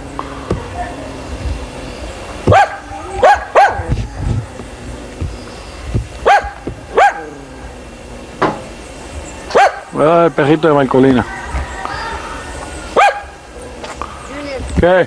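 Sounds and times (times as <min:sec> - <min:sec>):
dog barking: 0:02.5 - 0:03.9, 0:06.2 - 0:07.4, 0:09.5 - 0:09.9, 0:13.0 - 0:13.3.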